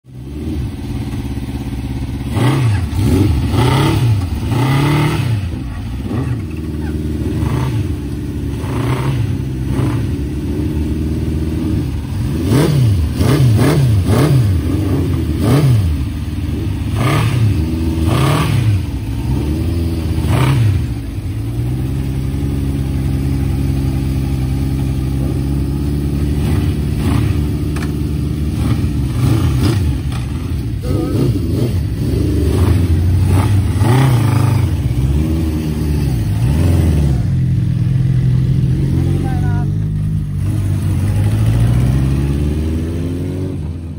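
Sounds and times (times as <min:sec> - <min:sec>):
motorcycle engines idling: 0:00.1 - 0:43.9
motorcycle engines revving: 0:00.1 - 0:43.9.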